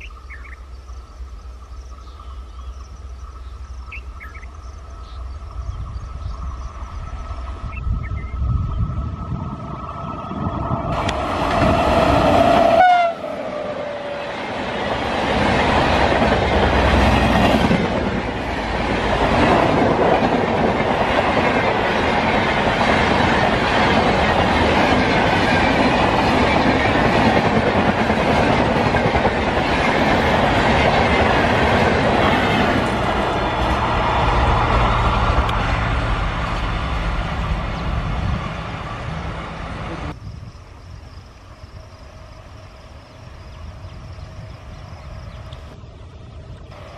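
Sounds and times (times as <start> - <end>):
train coaches rumbling and clattering: 0.0 - 40.5
locomotive horn blast: 12.2 - 14.1.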